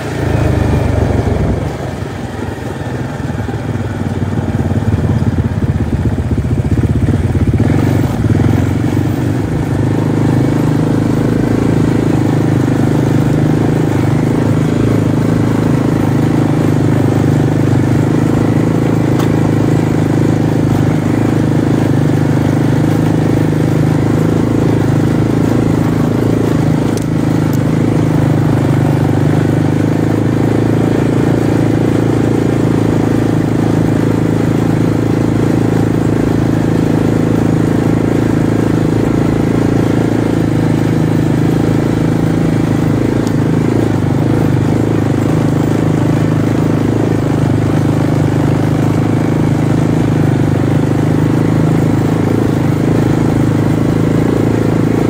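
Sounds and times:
off-road vehicle engine: 0:00.0 - 0:55.0.

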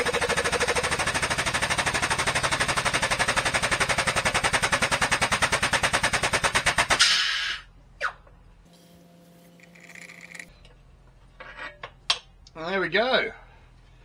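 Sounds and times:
short hiss of air: 0:07.0 - 0:07.6.

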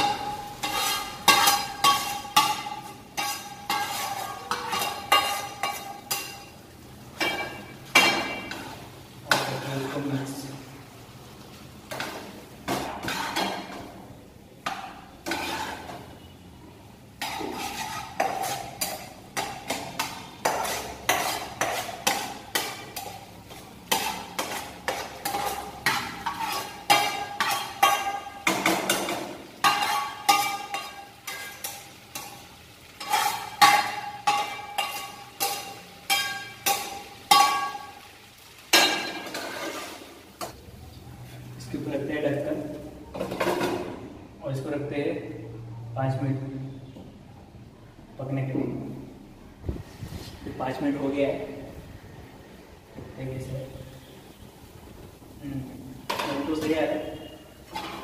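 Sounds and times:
spatula scraping frying pan: 0:00.0 - 0:10.1, 0:11.8 - 0:14.0, 0:14.6 - 0:16.4, 0:17.1 - 0:40.6, 0:56.0 - 0:58.0.

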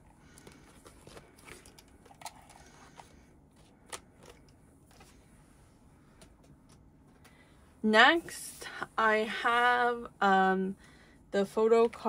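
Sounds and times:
plastic sleeves clicking and rustling: 0:00.3 - 0:05.2.

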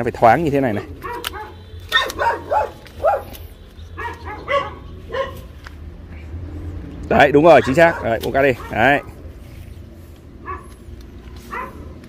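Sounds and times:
dog barking and yelping: 0:00.7 - 0:05.6, 0:07.5 - 0:09.2, 0:10.4 - 0:12.0.

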